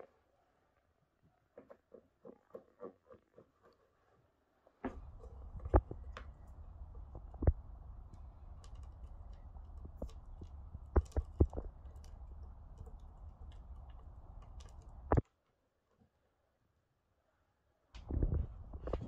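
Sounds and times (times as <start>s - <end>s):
hands kneading dough on wooden board: 4.8s - 15.2s
low steady rumble: 4.9s - 15.2s.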